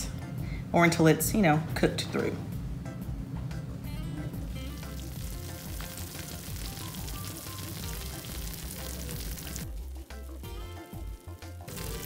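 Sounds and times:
soft background music: 0:00.0 - 0:12.0
crackling sizzle-like noise: 0:03.9 - 0:12.0.

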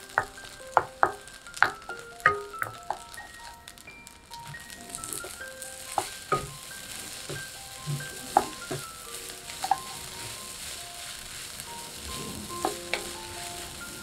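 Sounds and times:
light melody of held notes: 0:00.0 - 0:14.0
rice sizzling in a pan: 0:00.0 - 0:14.0.

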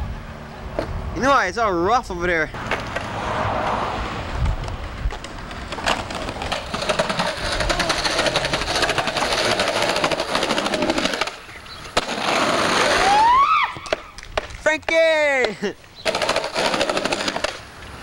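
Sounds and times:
skateboard wheels rolling: 0:02.5 - 0:18.0
person shouting: 0:13.0 - 0:13.8.

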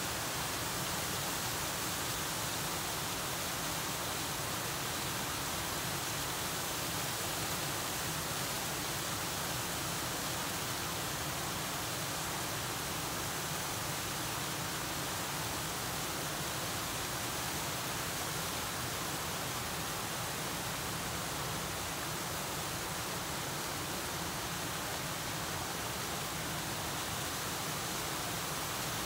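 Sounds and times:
waterfall pouring and splashing: 0:00.0 - 0:29.0.

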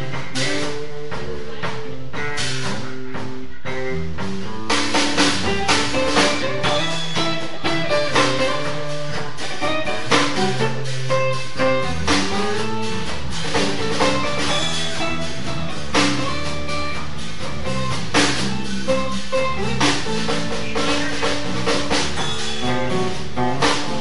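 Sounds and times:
drum and cymbal hits: 0:00.0 - 0:24.0
electric guitar playing jazz: 0:00.0 - 0:24.0.

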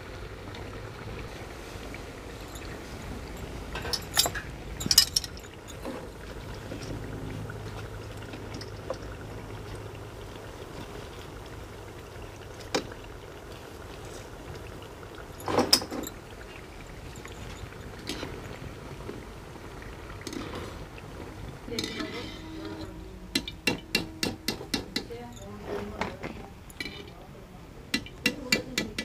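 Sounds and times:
deep-frying sizzle in hot oil: 0:00.0 - 0:25.4, 0:27.8 - 0:29.0
metal clinks and knocks: 0:02.5 - 0:06.0.

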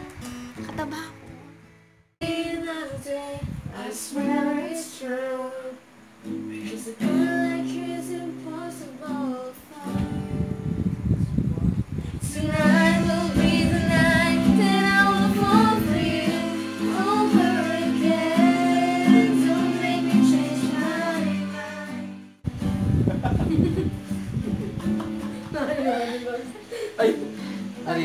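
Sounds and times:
strummed acoustic guitar: 0:00.0 - 0:02.4, 0:06.2 - 0:10.8, 0:12.2 - 0:28.0
women singing in unison: 0:02.2 - 0:05.9, 0:06.6 - 0:10.5, 0:12.2 - 0:22.2.

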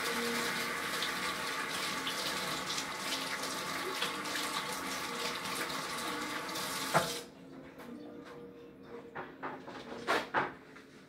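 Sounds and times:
faucet running: 0:00.0 - 0:07.3
faucet shut-off knock: 0:06.8 - 0:07.2.

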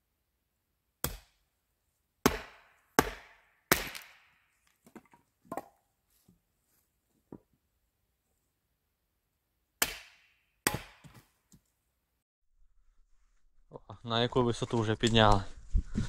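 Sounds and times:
tool striking wood: 0:02.2 - 0:04.3, 0:09.8 - 0:11.3.

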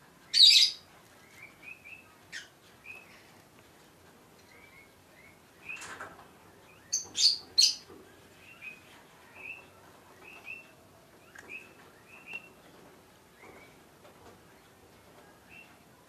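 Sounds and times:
bird chirping: 0:00.3 - 0:03.3, 0:04.4 - 0:13.9.

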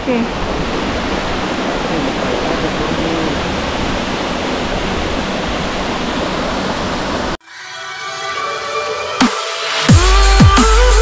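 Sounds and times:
waterfall rushing: 0:00.0 - 0:07.4
electronic music: 0:07.4 - 0:11.0.

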